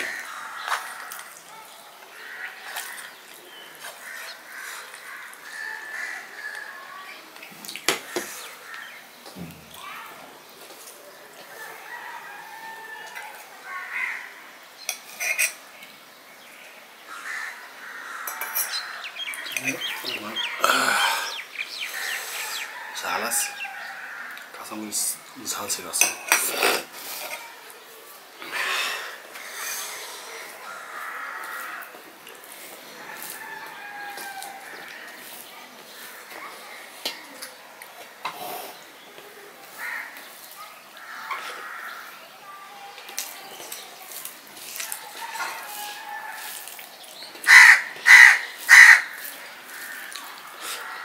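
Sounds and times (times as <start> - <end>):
birds calling: 0.0 - 13.1, 13.7 - 27.5, 28.3 - 51.0
spoon clinking on steel plates: 14.9 - 15.6, 25.9 - 26.5
hand mixing rice on plate: 30.4 - 37.3, 43.2 - 47.5.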